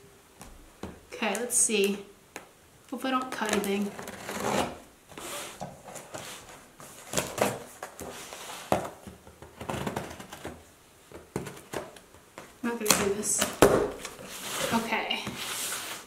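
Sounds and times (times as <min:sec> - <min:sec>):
knife cutting cardboard box tape: 0:03.4 - 0:05.6.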